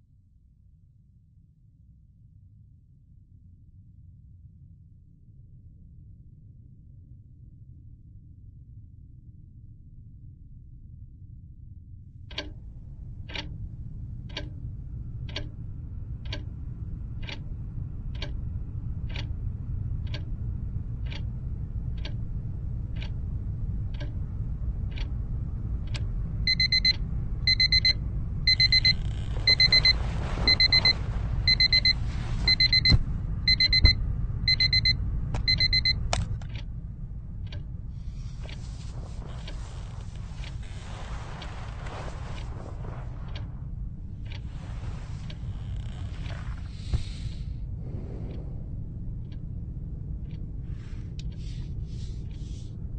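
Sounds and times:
alarm clock ticking: 12.3s - 24.2s, 25.9s - 36.7s
alarm clock click: 26.5s - 31.9s, 32.5s - 36.6s
electronic alarm beeps: 26.5s - 36.0s.

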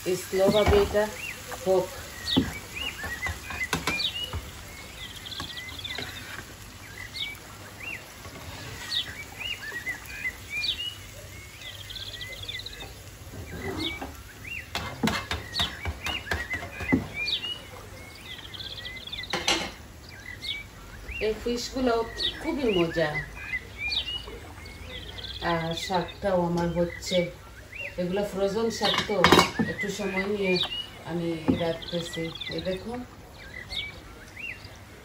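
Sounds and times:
small birds chirping: 0.0s - 35.0s
metal spatula tapping frying pan: 14.7s - 16.9s.

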